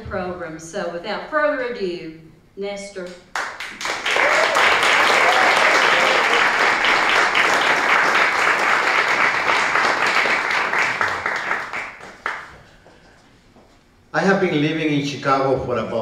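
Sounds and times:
audience applauding: 0:03.3 - 0:13.0.

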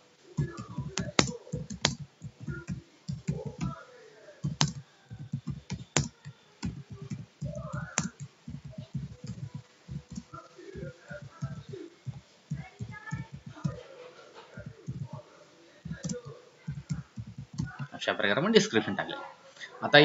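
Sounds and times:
typing on computer keyboard: 0:00.4 - 0:03.8, 0:04.4 - 0:13.8, 0:14.6 - 0:15.2, 0:15.8 - 0:17.9.

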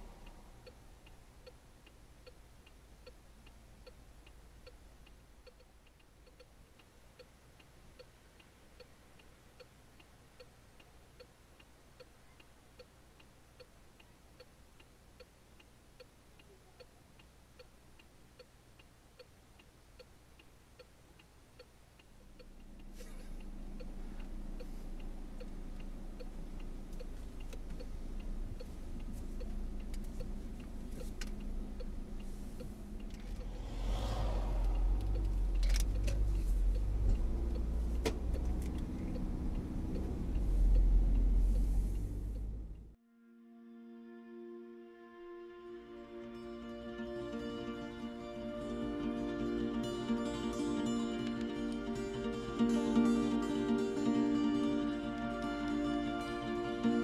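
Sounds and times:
car engine idling: 0:22.1 - 0:43.0.

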